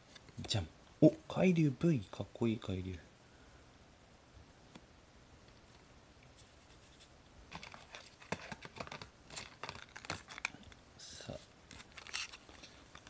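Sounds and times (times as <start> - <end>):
paper rustling: 6.4 - 10.6, 11.3 - 13.0
paper scraping: 11.3 - 13.0.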